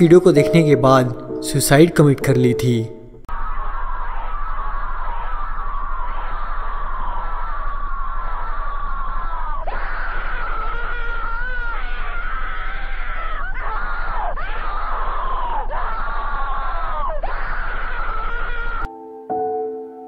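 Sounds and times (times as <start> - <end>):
low hum: 3.0 - 18.8
distorted scream-like wailing: 3.3 - 18.9.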